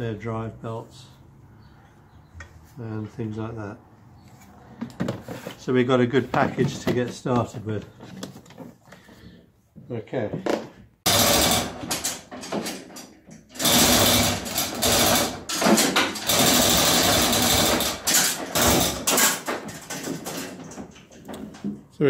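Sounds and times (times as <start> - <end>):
lifting gear clattering and rattling: 11.1 - 22.0.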